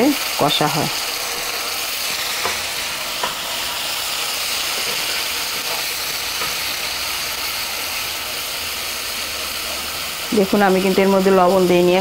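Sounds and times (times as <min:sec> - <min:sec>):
masala sizzling in hot oil: 0:00.0 - 0:12.0
spatula tapping pan: 0:02.0 - 0:03.5, 0:04.7 - 0:06.7.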